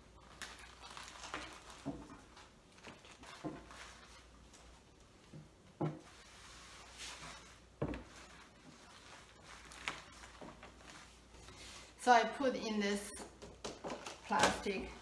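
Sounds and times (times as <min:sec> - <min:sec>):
cloth rustling: 0:00.1 - 0:12.0.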